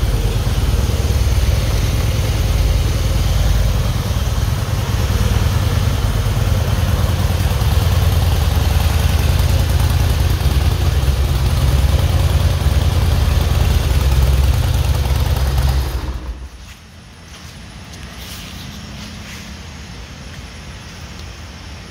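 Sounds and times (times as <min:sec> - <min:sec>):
motorcycle engine idling: 0:00.0 - 0:17.2.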